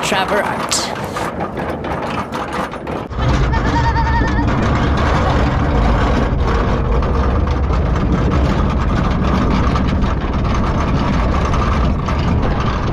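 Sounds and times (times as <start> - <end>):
small rattles and clicks: 0.0 - 12.9
engine low rumble: 3.0 - 12.9.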